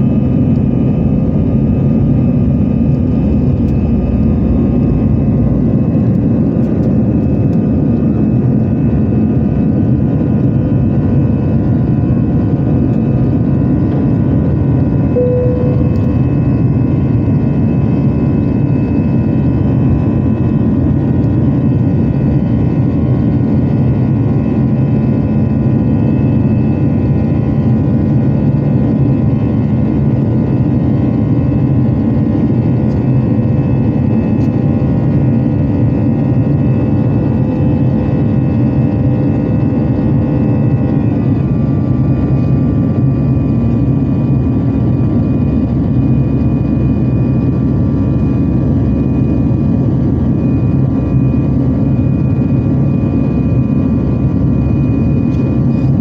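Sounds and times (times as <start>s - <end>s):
jet engines droning in cabin: 0.0s - 56.0s
brief single tone: 15.1s - 16.8s.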